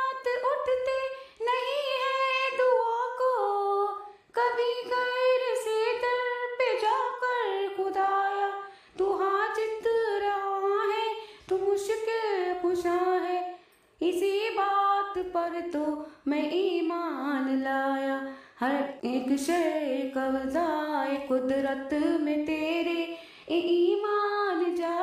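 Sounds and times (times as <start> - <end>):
woman singing unaccompanied: 0.0 - 25.0.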